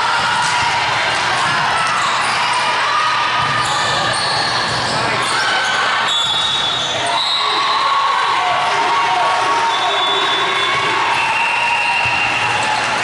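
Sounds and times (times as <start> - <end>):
volleyballs hit and bouncing: 0.0 - 5.3, 10.4 - 13.0
many voices calling and talking: 0.0 - 13.0.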